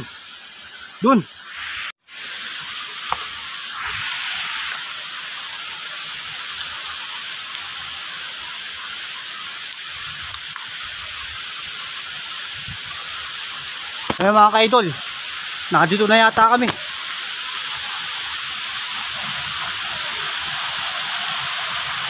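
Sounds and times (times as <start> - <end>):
waterfall rushing: 0.9 - 18.0.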